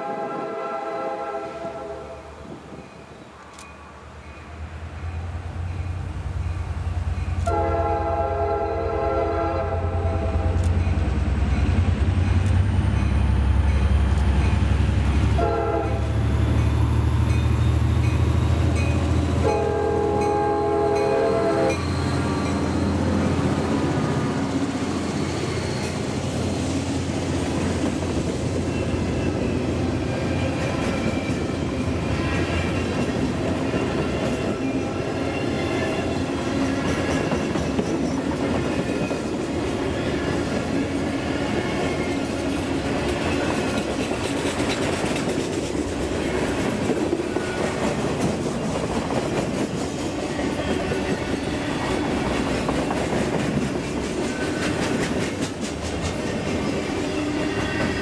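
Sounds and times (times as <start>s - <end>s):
train air horn: 0.0s - 2.4s, 7.4s - 10.7s, 15.4s - 16.2s, 19.4s - 21.8s
diesel locomotives rumbling: 0.0s - 58.0s
freight cars rolling on rails: 10.2s - 58.0s.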